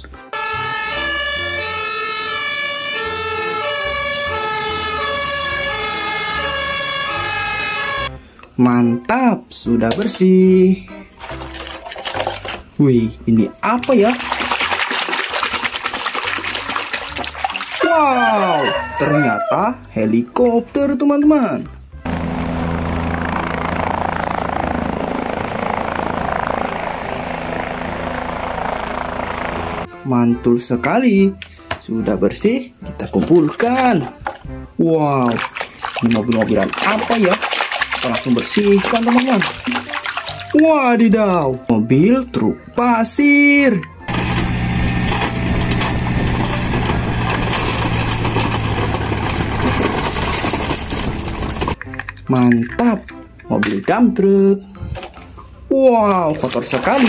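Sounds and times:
toy electronic siren sound: 0.4s - 8.1s
low engine drone: 0.4s - 8.3s, 22.0s - 29.9s, 44.1s - 51.8s
helicopter rotor chop: 22.1s - 29.9s, 44.1s - 51.8s.

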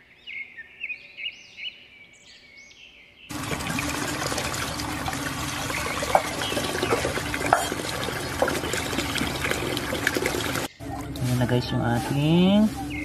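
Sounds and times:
sharp water splashes: 3.3s - 11.2s
running water pouring into basin: 3.3s - 11.3s.

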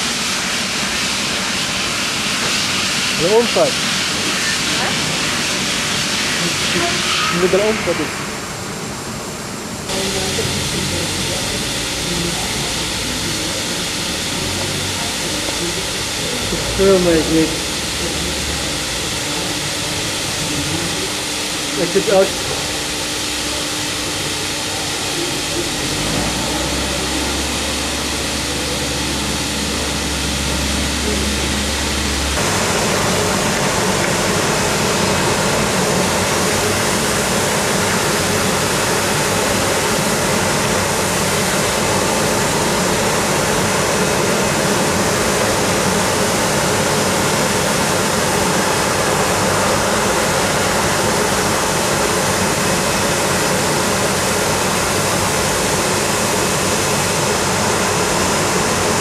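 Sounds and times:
washing machine motor hum: 0.0s - 59.0s.

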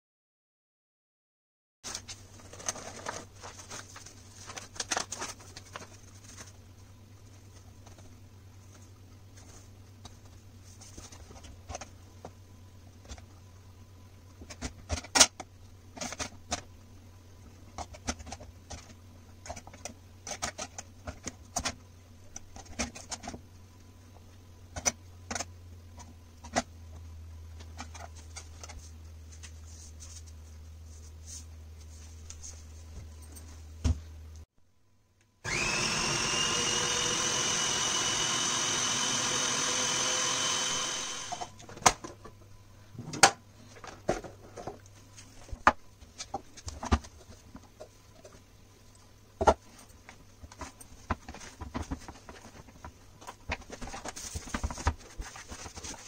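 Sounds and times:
food processor motor whining: 35.4s - 41.6s.

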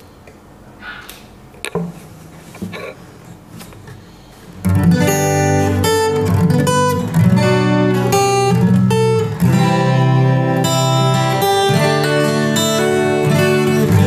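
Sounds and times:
acoustic guitar chords: 4.6s - 14.0s.

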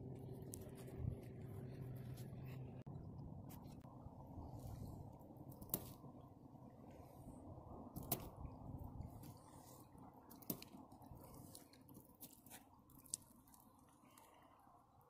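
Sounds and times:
rope rubbing and squishing: 0.0s - 2.9s, 9.0s - 14.4s
low steady rumble: 0.0s - 15.0s.

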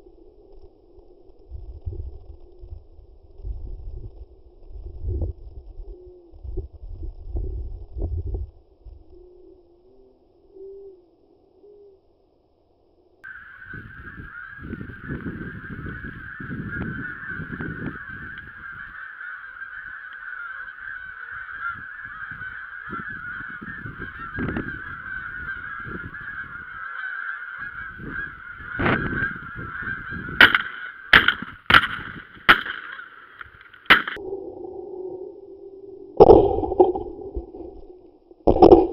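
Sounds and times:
geese honking: 13.2s - 34.2s
shotgun shots: 30.4s - 33.2s, 33.9s - 34.2s.

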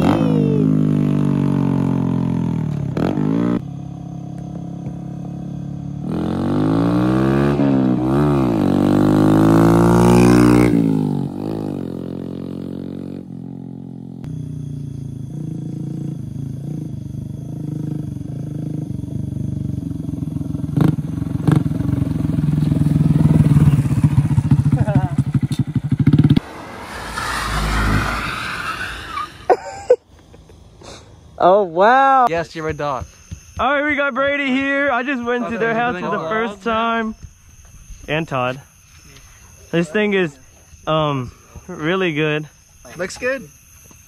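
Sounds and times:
motorcycle engine revving: 0.0s - 29.4s.

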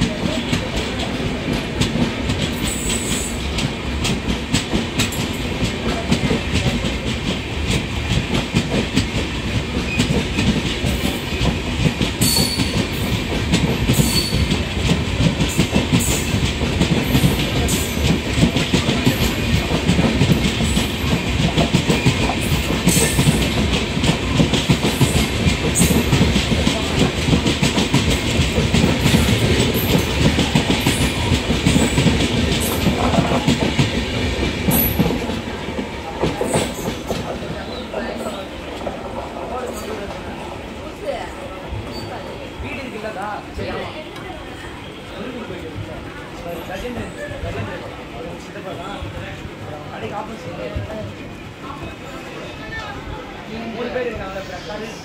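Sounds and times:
train wheels clattering over rails: 0.0s - 40.8s.

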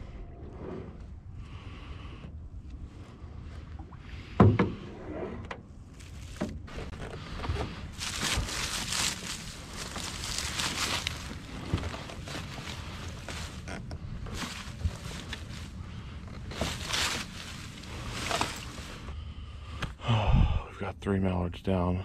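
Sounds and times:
hollow thump on a boat: 3.8s - 5.7s
rustling and handling noise: 5.9s - 19.2s.

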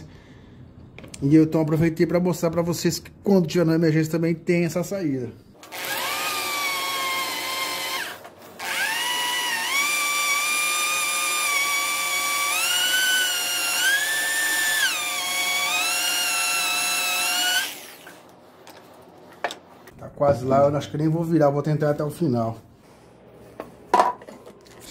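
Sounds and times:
electric drill whining: 5.6s - 18.3s.

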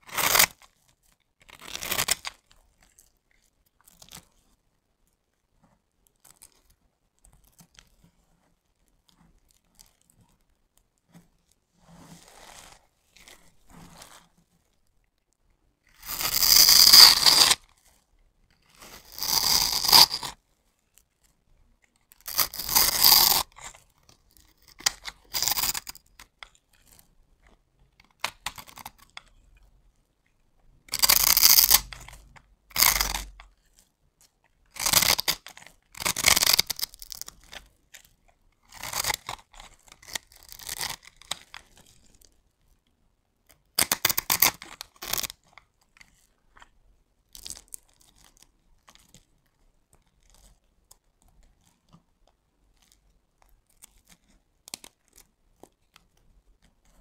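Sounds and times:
knife cutting soap: 0.0s - 0.6s, 1.4s - 3.1s, 15.9s - 17.7s, 18.6s - 20.4s, 22.0s - 29.6s, 30.9s - 41.8s
soap cubes crunching: 1.5s - 2.3s.

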